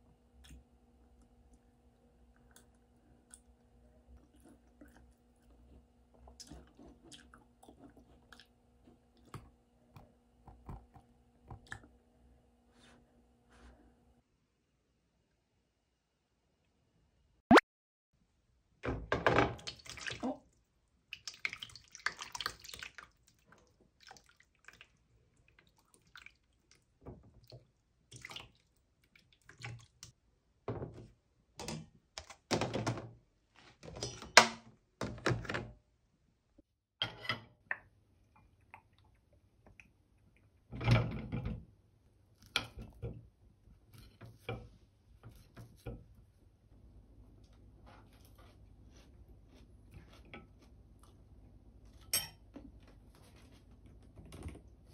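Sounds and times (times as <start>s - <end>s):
running water: 19.4s - 30.0s.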